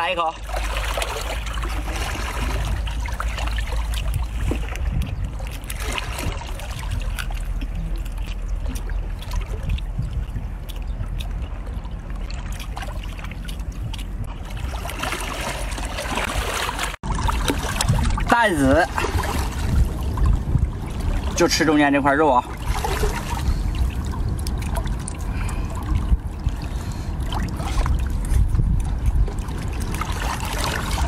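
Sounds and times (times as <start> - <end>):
wind rumbling on microphone: 0.0 - 31.0
wet chewing and slurping: 2.6 - 15.0.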